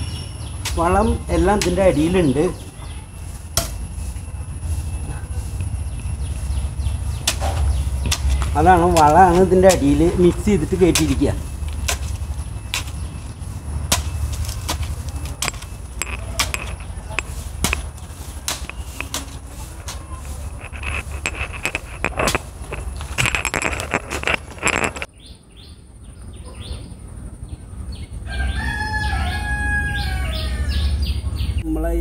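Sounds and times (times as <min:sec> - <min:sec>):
hoe chopping soil: 0:00.0 - 0:02.6, 0:03.5 - 0:03.9, 0:07.0 - 0:24.6
birds calling: 0:00.0 - 0:32.0.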